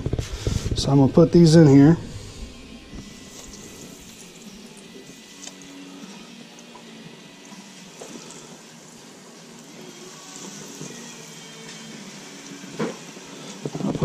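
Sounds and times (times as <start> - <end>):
oil sizzling in deep fryer: 3.0 - 14.0.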